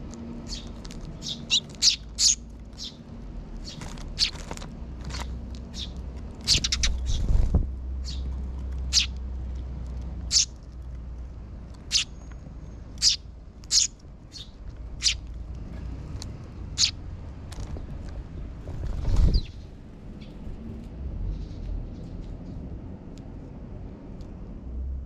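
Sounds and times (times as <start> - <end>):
sparrows chirping: 0.3 - 9.2, 10.1 - 10.6, 11.8 - 20.6, 21.2 - 22.3
wings fluttering: 3.6 - 8.3, 17.5 - 20.9.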